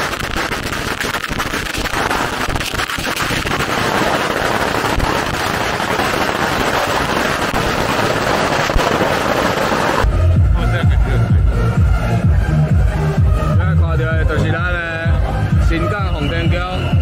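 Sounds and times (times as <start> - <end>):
firecrackers crackling: 0.0 - 11.7.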